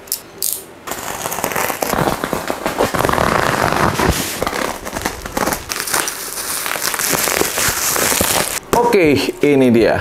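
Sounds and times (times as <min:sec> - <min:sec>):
box cutter slitting packaging: 0:00.9 - 0:08.6
bubble wrap crackling: 0:00.9 - 0:08.6.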